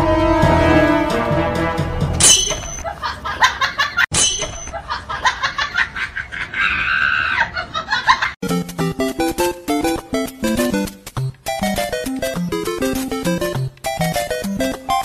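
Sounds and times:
background music: 0.0s - 2.8s, 8.4s - 15.0s
laughing sound effect: 4.7s - 8.4s.

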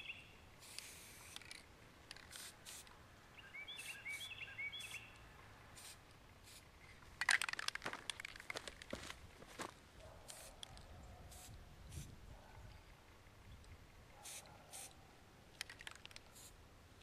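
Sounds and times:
bird chirping: 0.0s - 0.4s, 3.2s - 5.4s
spray-paint can hissing: 0.6s - 2.9s, 3.7s - 5.0s, 5.8s - 6.7s, 10.3s - 10.6s, 11.3s - 12.1s, 14.2s - 14.9s, 15.6s - 16.6s.

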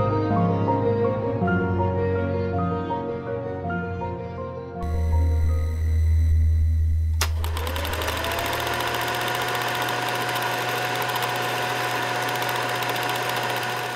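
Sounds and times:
deep low drone: 4.8s - 7.3s
click: 7.1s - 8.0s
film projector running: 7.1s - 13.9s.

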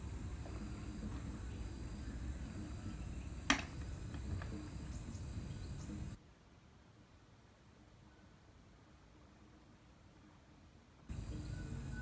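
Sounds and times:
high-pitched insect drone: 11.1s - 12.0s.

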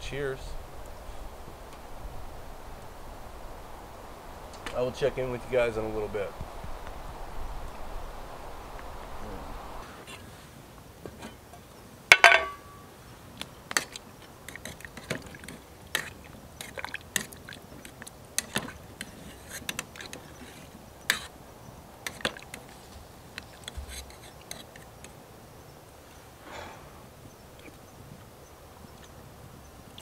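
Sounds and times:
sharp ringing clink: 12.1s - 12.9s.

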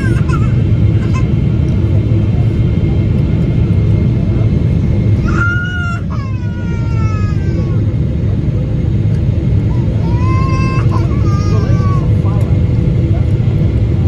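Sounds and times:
small child crying: 0.0s - 1.4s, 5.2s - 7.9s, 9.6s - 12.3s
airplane cabin rumble: 0.0s - 14.0s.

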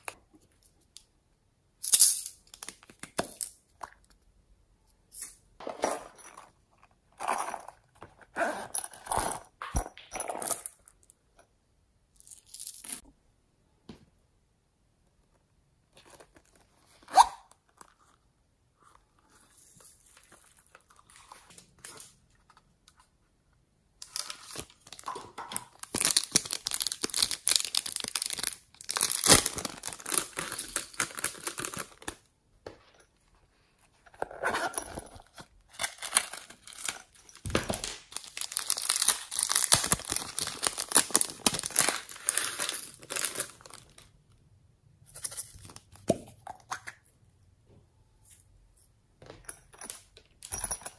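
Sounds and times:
crinkling plastic containers: 24.0s - 32.2s, 35.2s - 44.1s.

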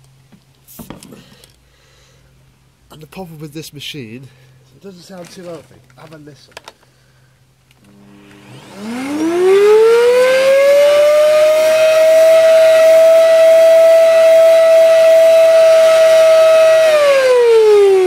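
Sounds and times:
vacuum cleaner motor whine: 7.8s - 18.0s.

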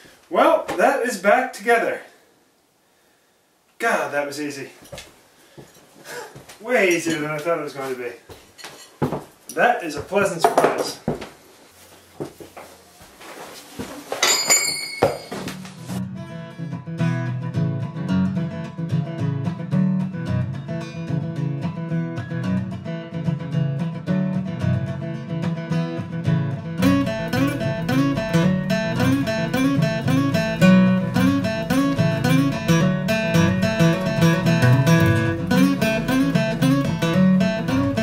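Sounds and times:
acoustic guitar strumming: 15.3s - 38.0s
bass: 15.7s - 38.0s.

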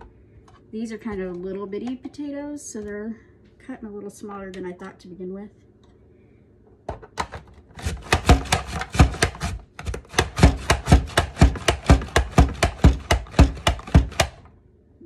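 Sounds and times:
mandoline chopping clacks: 8.0s - 14.4s.

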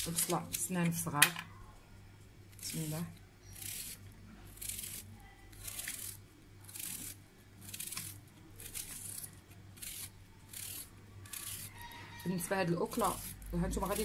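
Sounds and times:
knife slicing onion: 2.6s - 11.8s, 12.8s - 14.0s.

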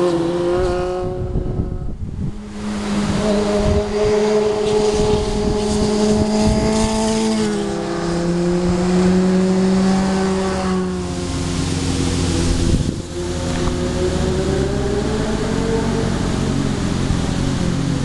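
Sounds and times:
motorcycle engine at high revs: 0.0s - 18.0s.

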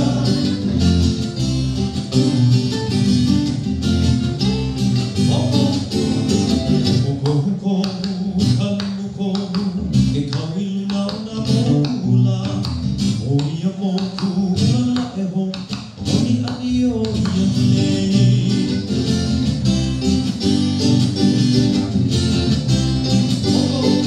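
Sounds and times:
person singing: 0.0s - 1.0s, 5.2s - 19.0s, 23.4s - 24.0s
acoustic guitar strumming: 0.0s - 24.0s
ukulele strumming: 0.0s - 24.0s.

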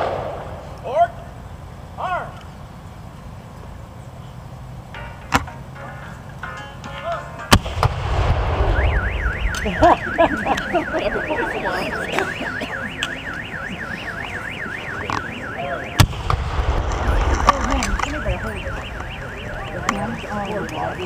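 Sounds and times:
gunshots: 0.0s - 0.8s, 7.5s - 11.0s, 14.7s - 20.6s
car alarm wailing: 8.5s - 21.0s.

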